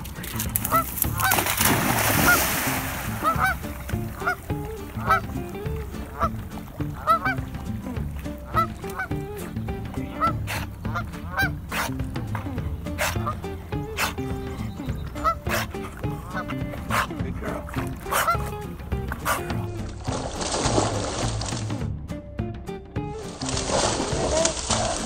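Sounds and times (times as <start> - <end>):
dog splashing into water: 0.0 - 9.3, 17.8 - 21.8, 23.2 - 25.0
geese honking: 0.0 - 20.0.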